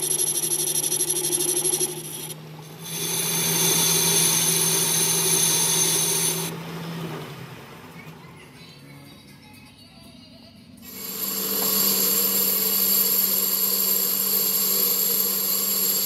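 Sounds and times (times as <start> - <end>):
lathe tool scraping steel: 0.0 - 6.5, 10.8 - 16.0
lathe humming: 0.0 - 6.8, 10.8 - 16.0.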